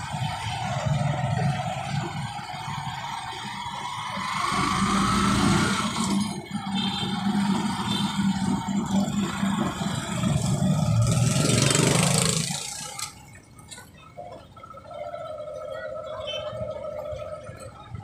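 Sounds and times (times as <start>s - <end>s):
vehicle engine passing: 0.0s - 13.2s.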